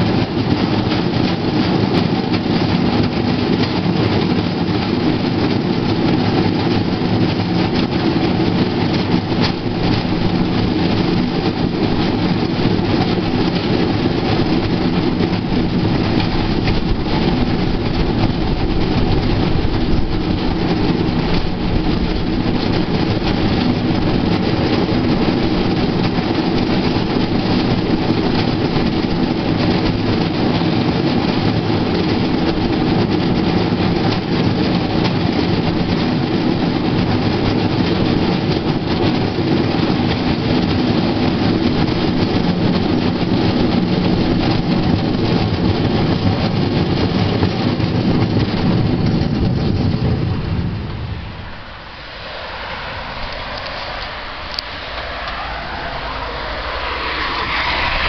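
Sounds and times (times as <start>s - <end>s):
steel wheels rolling on rails: 0.0s - 58.0s.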